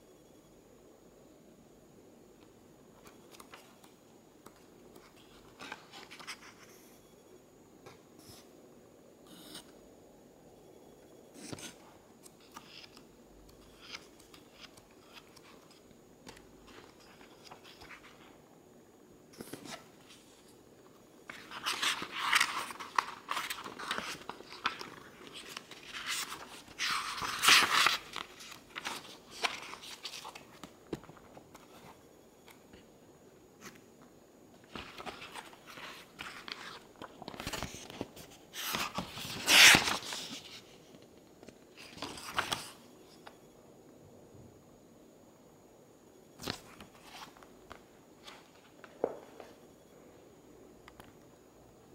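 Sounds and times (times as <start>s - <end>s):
book pages rustling: 13.7s - 18.3s, 21.2s - 32.8s, 34.6s - 40.8s, 41.8s - 42.8s, 46.4s - 49.6s.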